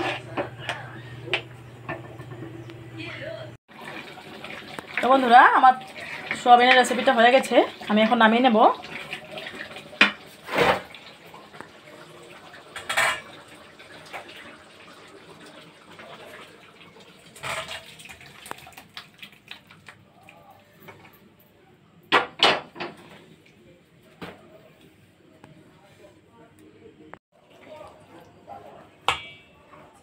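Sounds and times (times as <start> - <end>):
ladle scraping: 0.0 - 2.7
metal cookware clanking: 0.0 - 2.7, 12.8 - 13.4, 29.0 - 30.0.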